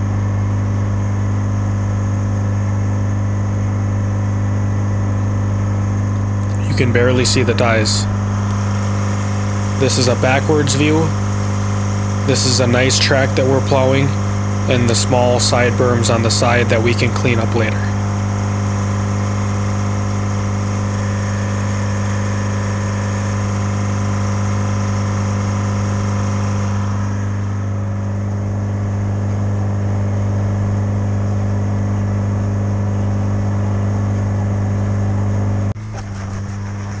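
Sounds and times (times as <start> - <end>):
diesel engine droning: 0.0 - 29.0, 33.9 - 37.0.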